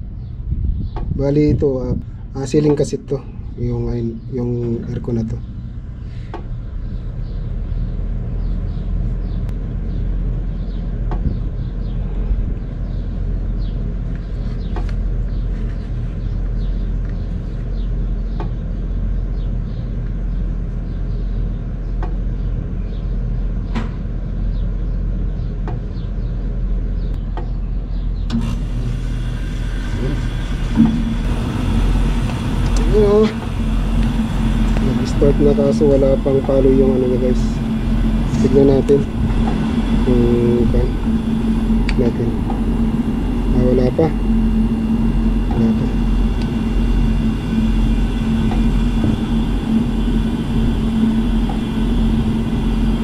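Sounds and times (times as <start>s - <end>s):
air conditioner unit rumbling: 0.0s - 53.0s
compressor hiss: 28.3s - 53.0s.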